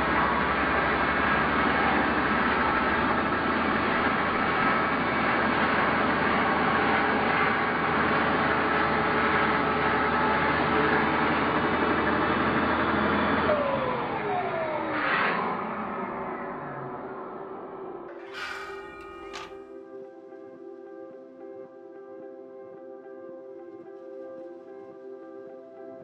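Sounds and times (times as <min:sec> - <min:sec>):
saw motor whining: 0:18.1 - 0:19.6.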